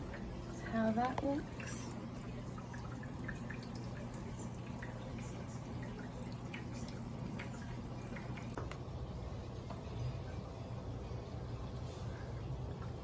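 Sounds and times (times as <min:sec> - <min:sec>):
water dripping and trickling: 0:00.0 - 0:08.6
aquarium pumps humming: 0:00.0 - 0:13.0.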